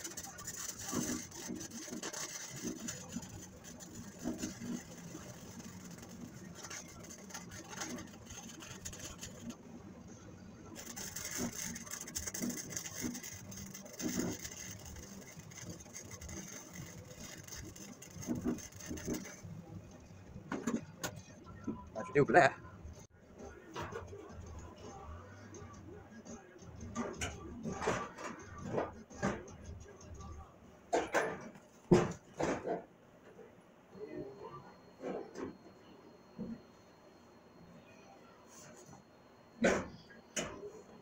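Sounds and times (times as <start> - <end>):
arc welder crackling: 0.0 - 9.6, 10.7 - 21.1.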